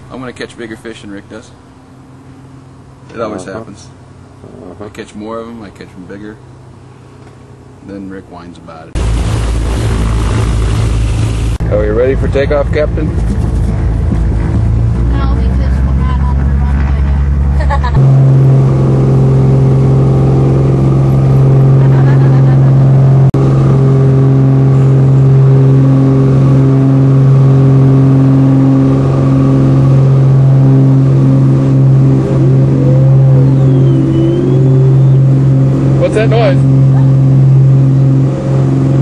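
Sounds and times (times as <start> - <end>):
airplane engine running: 8.9 - 39.0.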